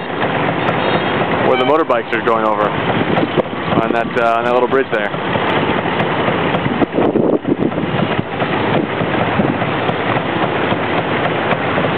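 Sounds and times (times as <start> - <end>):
motorbikes and cars traffic: 0.0 - 9.4
wind buffeting microphone: 0.0 - 11.9.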